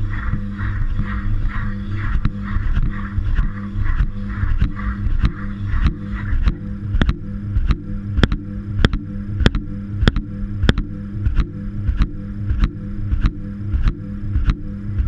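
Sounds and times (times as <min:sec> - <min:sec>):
sharp clicks in drum: 0:04.6 - 0:14.6.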